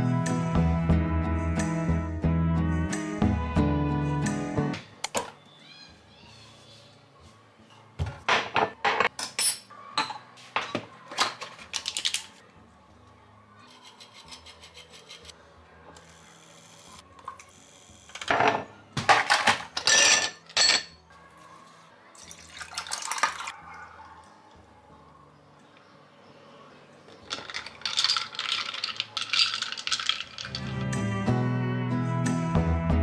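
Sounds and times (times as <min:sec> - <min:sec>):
hard objects clinking and knocking: 0:18.2 - 0:21.0, 0:27.1 - 0:31.0.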